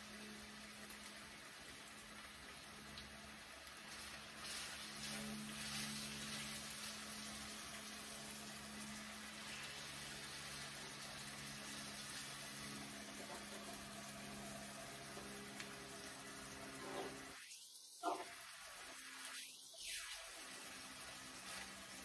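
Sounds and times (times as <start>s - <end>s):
low steady hum: 0.0s - 17.4s
chicken frying in hot oil: 0.0s - 22.0s.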